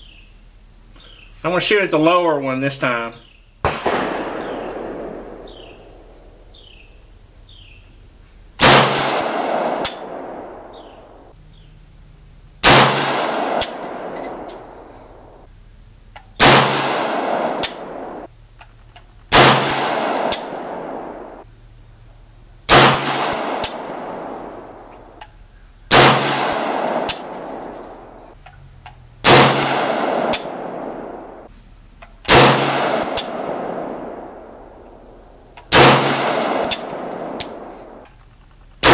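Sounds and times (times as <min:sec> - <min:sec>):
rifle shots with echo: 0:03.6 - 0:06.8, 0:08.6 - 0:11.3, 0:12.6 - 0:14.9, 0:16.4 - 0:18.3, 0:19.3 - 0:21.4, 0:22.7 - 0:24.9, 0:25.9 - 0:28.2, 0:29.2 - 0:31.5, 0:32.3 - 0:34.9, 0:35.7 - 0:38.0.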